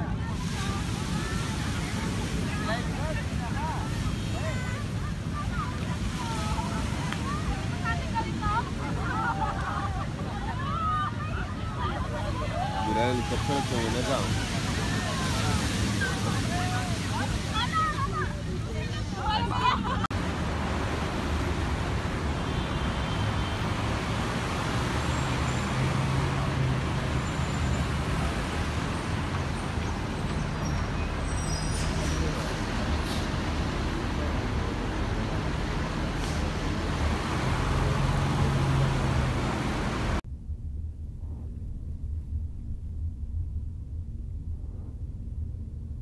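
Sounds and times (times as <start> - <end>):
vehicle engine hum: 0.0 - 46.0
low rumble: 40.1 - 46.0.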